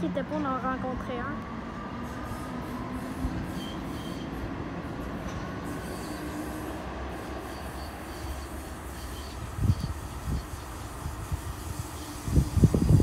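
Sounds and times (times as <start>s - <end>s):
train wheels rumbling on rails: 0.0s - 13.0s
high wheel squeals: 2.0s - 13.0s.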